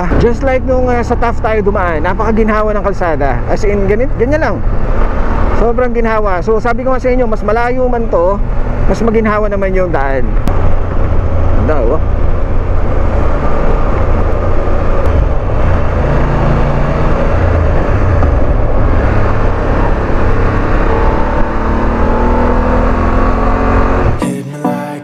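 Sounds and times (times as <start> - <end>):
wind rumble on microphone: 10.3 - 23.0
motorcycle engine cruising: 10.4 - 24.2.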